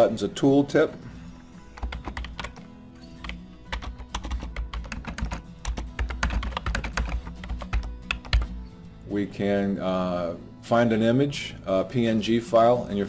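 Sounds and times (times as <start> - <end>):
typing on computer keyboard: 1.8 - 2.6, 3.2 - 8.5.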